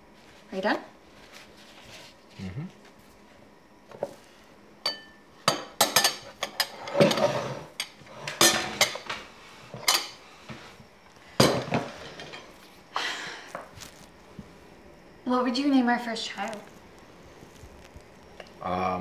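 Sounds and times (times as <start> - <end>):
ceramic bowls and spoons clinking: 4.8 - 9.1.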